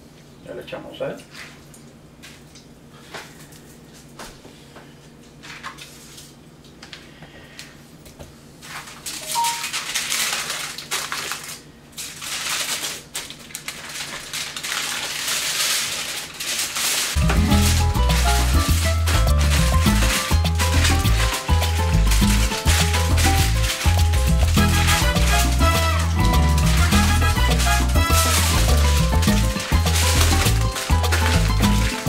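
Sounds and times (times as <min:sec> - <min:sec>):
aluminium foil crinkling: 0:08.6 - 0:32.0.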